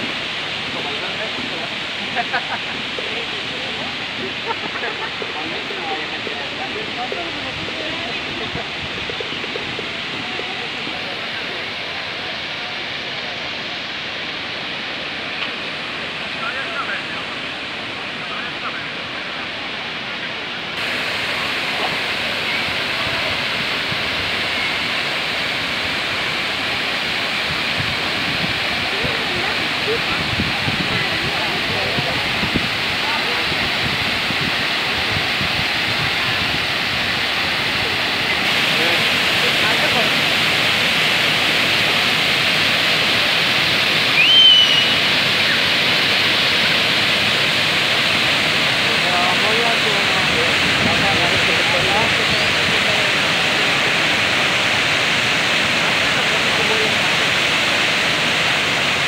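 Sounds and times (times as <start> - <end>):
water pouring down fountain: 0.0 - 59.0
high whistle-like tone: 44.1 - 45.7.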